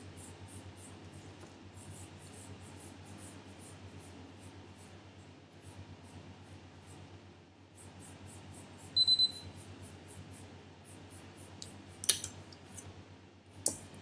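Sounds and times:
quick high beeps: 9.0s - 9.5s.

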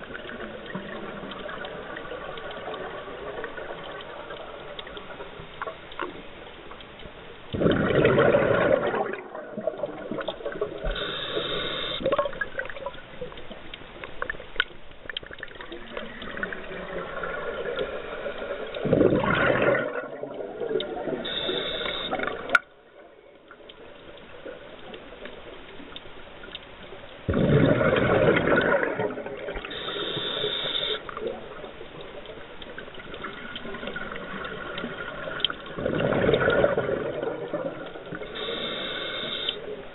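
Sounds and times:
exhaled bubbles gushing underwater: 7.5s - 13.3s, 15.2s - 22.6s, 27.2s - 39.9s
regulator inhalation hiss: 10.9s - 12.1s, 21.2s - 22.3s, 29.6s - 31.1s, 38.3s - 39.8s.

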